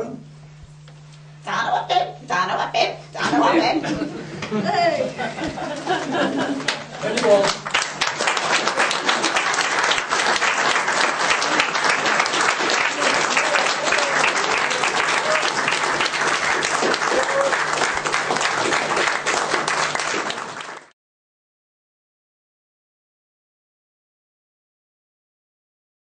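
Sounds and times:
audience applauding: 6.0s - 20.9s.

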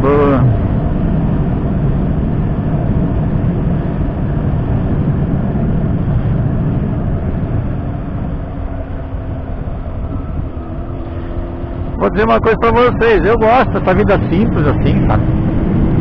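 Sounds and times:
motorcycle engine running: 0.0s - 16.0s
wind rushing over microphone: 0.0s - 16.0s.

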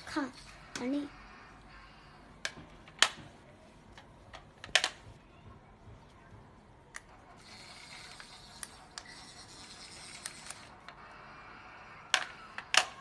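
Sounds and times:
toy train motor whirring: 7.4s - 13.0s.

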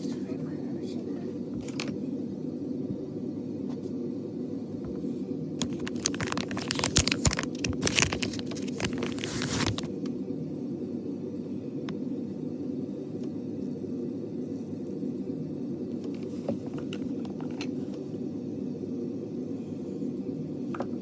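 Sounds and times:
steady low hum: 0.0s - 21.0s
wrapper crinkling and rustling: 5.6s - 9.9s.

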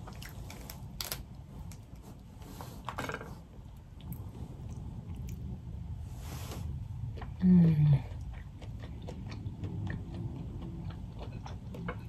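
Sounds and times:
shells cracking and peeling: 0.5s - 1.3s
close-up chewing: 3.6s - 5.7s, 6.7s - 12.0s.

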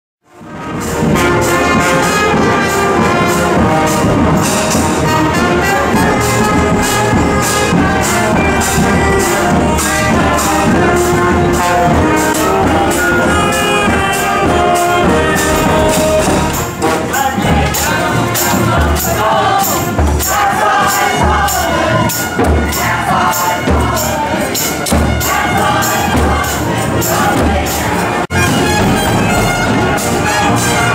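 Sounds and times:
brass band playing: 0.2s - 30.9s
crowd voices: 0.3s - 30.9s
bass drum beating: 2.4s - 19.4s.

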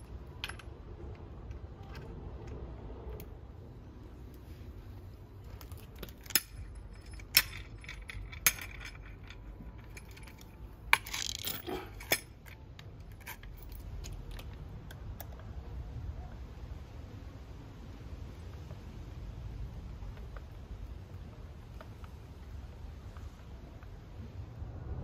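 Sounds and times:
metal hardware clinking: 0.0s - 2.6s, 5.5s - 14.6s.

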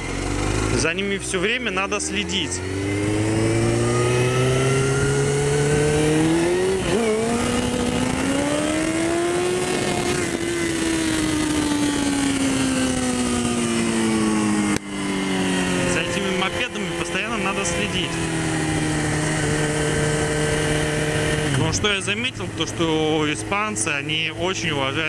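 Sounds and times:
motorcycle engine accelerating: 0.0s - 25.0s
wind rush: 3.3s - 13.8s.

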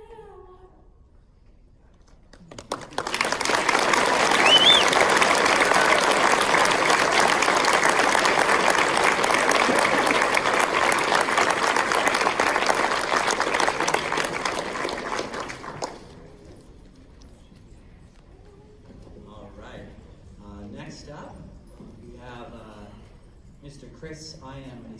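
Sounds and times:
audience applauding: 2.3s - 16.6s.

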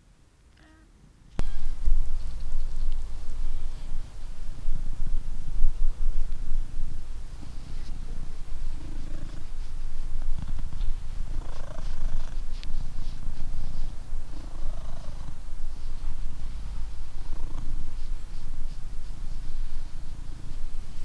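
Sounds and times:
cat purring: 1.4s - 21.0s.

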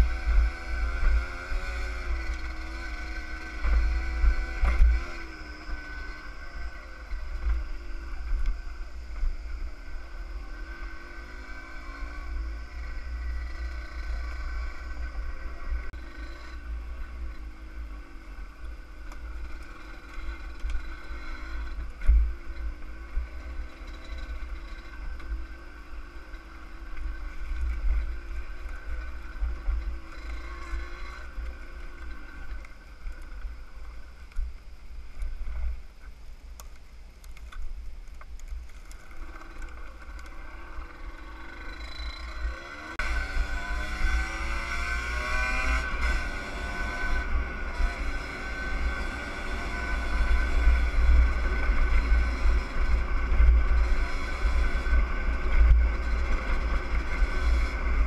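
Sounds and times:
two-stroke engine running: 0.0s - 33.8s.

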